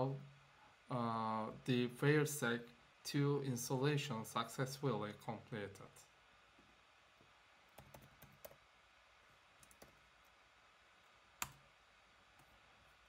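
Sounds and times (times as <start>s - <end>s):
computer keyboard keystrokes: 7.8s - 8.6s, 9.6s - 10.0s.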